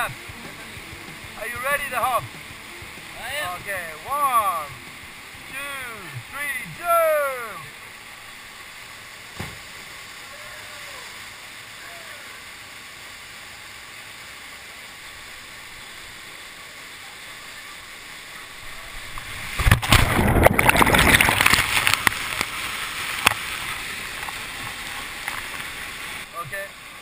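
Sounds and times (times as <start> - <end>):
water splashing and knocks: 0.0 - 4.0, 9.3 - 9.9, 19.1 - 25.8
whitewater rushing: 0.0 - 27.0.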